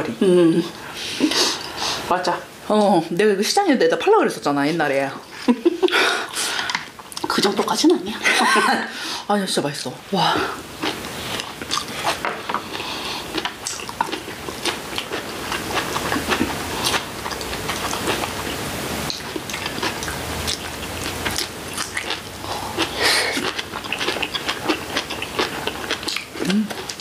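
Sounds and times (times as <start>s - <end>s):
people chewing crunchy food: 10.2s - 27.0s.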